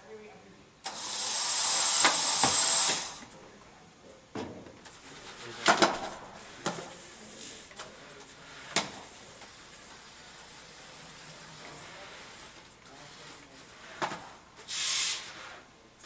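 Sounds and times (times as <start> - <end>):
flywheel shooter high whine: 0.8 - 3.3.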